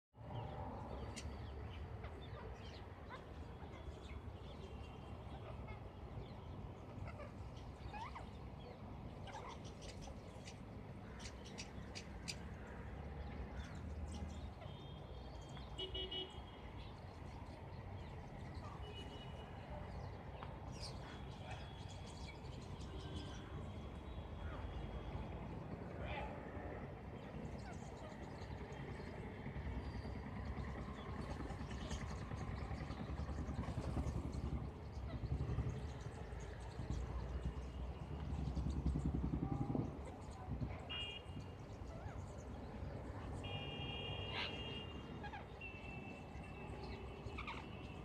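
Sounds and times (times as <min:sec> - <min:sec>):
birds chirping: 0:00.3 - 0:25.3, 0:39.7 - 0:48.0.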